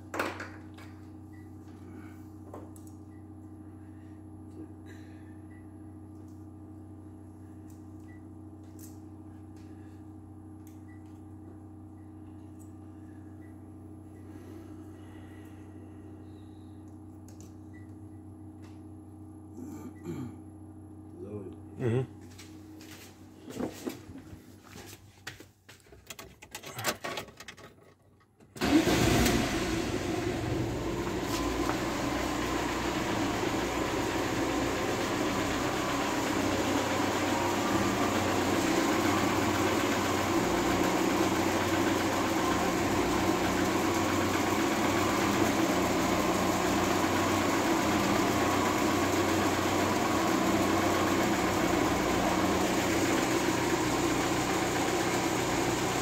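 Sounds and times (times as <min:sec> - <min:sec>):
car engine starting and idling: 0:28.5 - 0:56.0.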